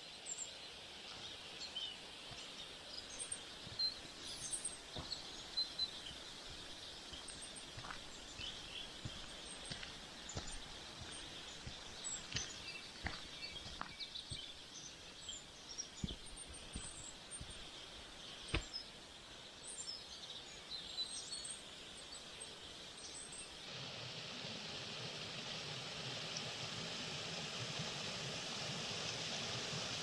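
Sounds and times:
small birds chirping: 0:00.0 - 0:23.7
faint hiss: 0:00.0 - 0:30.0
forest stream rushing: 0:00.0 - 0:30.0.

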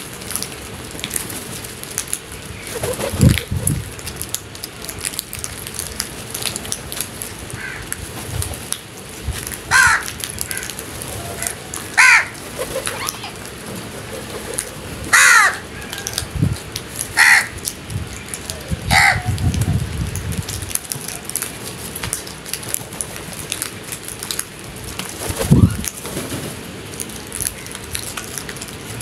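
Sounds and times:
crows cawing: 0:07.6 - 0:07.9, 0:09.7 - 0:10.8, 0:11.4 - 0:13.5, 0:14.2 - 0:16.1, 0:17.2 - 0:17.6, 0:18.9 - 0:19.2.

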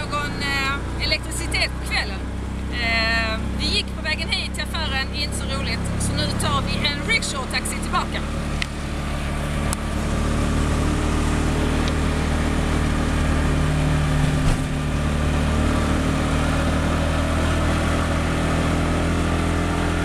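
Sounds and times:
auto-rickshaw engine running: 0:00.0 - 0:20.0.

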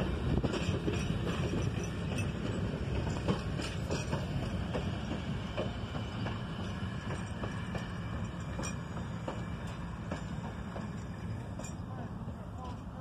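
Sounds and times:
train coaches rumbling past: 0:00.0 - 0:13.0.

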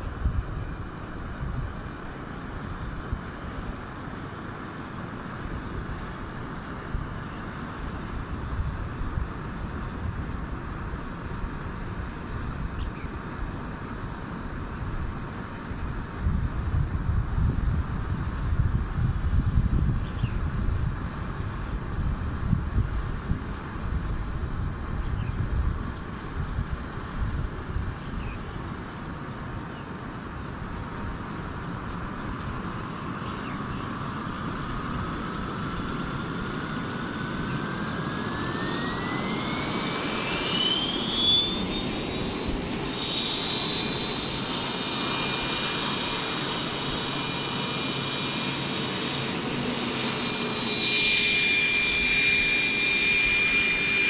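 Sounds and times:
wind rumble on microphone: 0:00.0 - 0:04.0, 0:05.5 - 0:29.4
gas turbine whine: 0:00.0 - 0:54.0.

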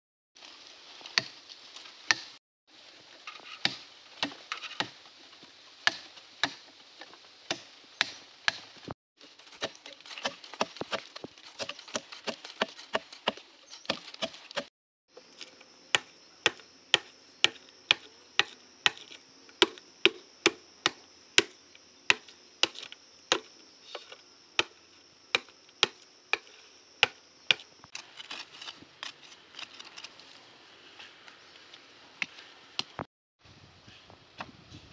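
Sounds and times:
machete chopping bamboo: 0:01.2 - 0:01.4, 0:02.1 - 0:02.4, 0:03.6 - 0:05.0, 0:05.8 - 0:06.6, 0:07.5 - 0:08.7, 0:09.6 - 0:14.7, 0:15.9 - 0:23.5, 0:24.6 - 0:27.7.

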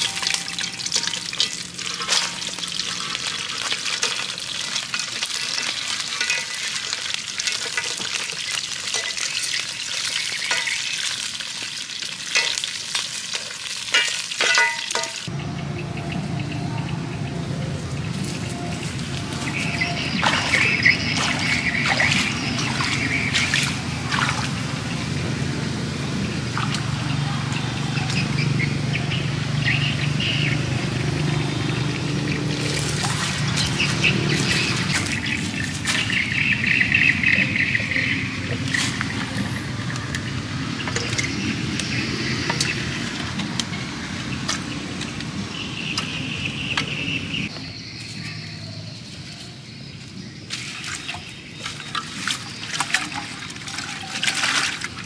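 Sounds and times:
water splashing and pouring: 0:00.0 - 0:15.3, 0:18.9 - 0:25.4, 0:26.0 - 0:27.2, 0:30.9 - 0:43.4, 0:50.5 - 0:55.0
birds chirping: 0:14.7 - 0:54.8.

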